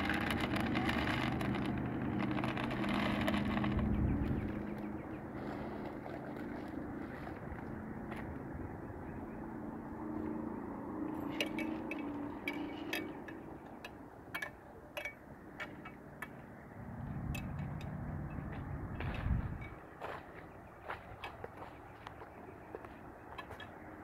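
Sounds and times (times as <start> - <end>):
low rumble: 0.0 - 11.4, 16.6 - 19.8
distant vehicle engine droning: 0.0 - 24.0.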